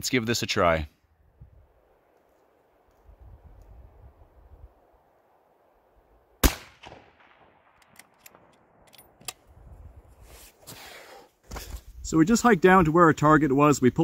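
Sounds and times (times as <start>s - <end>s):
rifle shot echoing: 6.4s - 9.2s.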